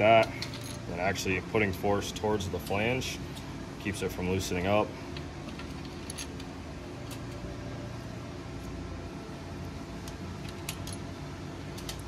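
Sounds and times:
low machine hum: 0.0s - 12.0s
faint clicks of metal washers: 10.0s - 11.1s, 11.7s - 12.0s.

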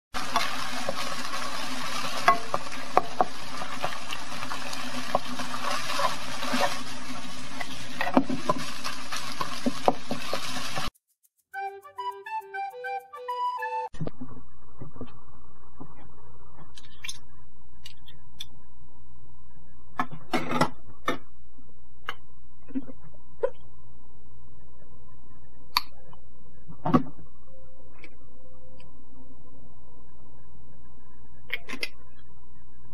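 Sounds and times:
meat sizzling in a frying pan: 0.2s - 10.9s
spatula scraping a pan: 0.2s - 10.9s
steady hum: 14.0s - 32.9s.

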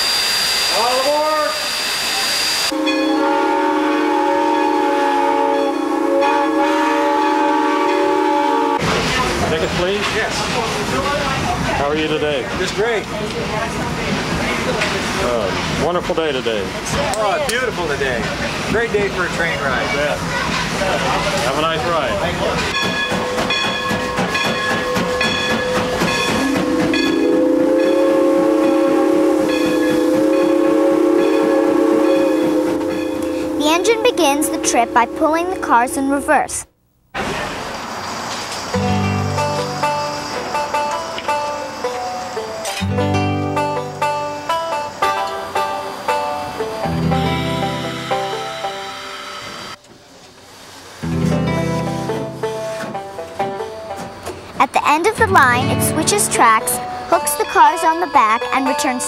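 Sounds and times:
steam locomotive whistle: 0.0s - 8.9s, 22.8s - 36.5s, 46.9s - 49.8s.

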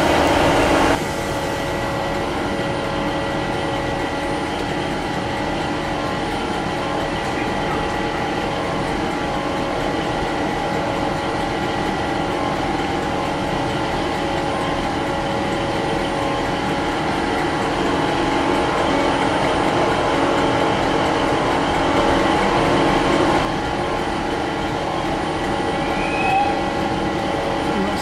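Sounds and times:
train rumbling: 0.0s - 28.0s.

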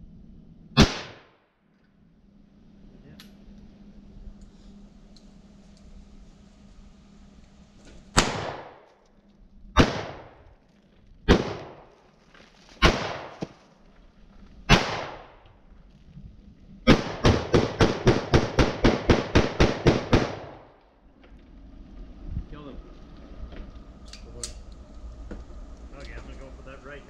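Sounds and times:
gunshots with short echo: 0.8s - 1.3s, 8.2s - 8.9s, 9.8s - 10.4s, 11.3s - 11.9s, 12.8s - 13.6s, 14.7s - 15.4s, 16.9s - 20.7s.

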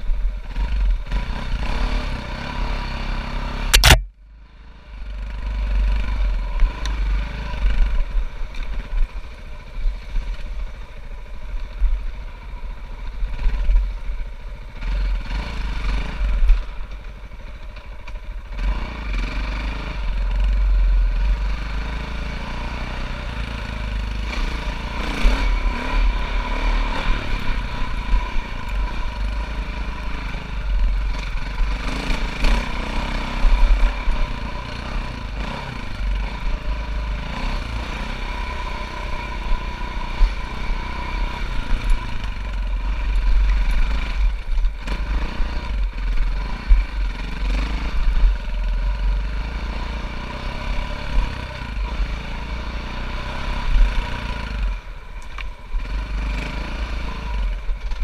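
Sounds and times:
dirt bike engine revving: 0.4s - 4.1s, 14.7s - 16.8s, 18.4s - 55.0s, 55.6s - 58.0s
knocks and clatter from bike: 57.6s - 58.0s.

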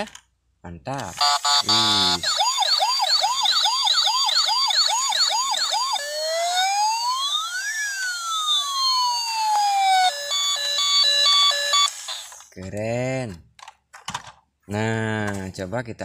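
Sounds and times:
toy electronic siren: 1.2s - 12.5s.

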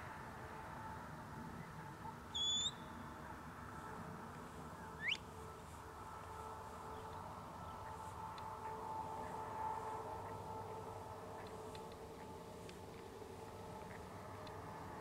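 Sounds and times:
faint steady hum: 0.0s - 15.0s
sharp whistles: 2.3s - 2.9s, 5.0s - 5.2s.

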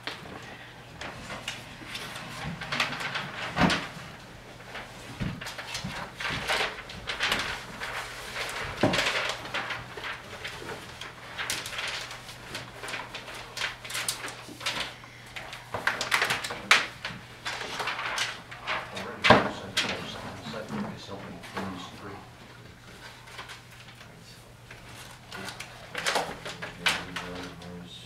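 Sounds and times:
paper sheets rustling: 0.0s - 28.0s
steady low hum: 0.0s - 28.0s.

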